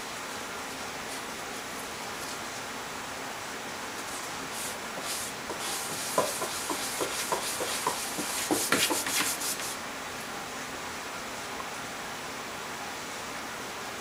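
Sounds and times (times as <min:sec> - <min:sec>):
cat claws scratching cardboard: 0:05.0 - 0:09.8.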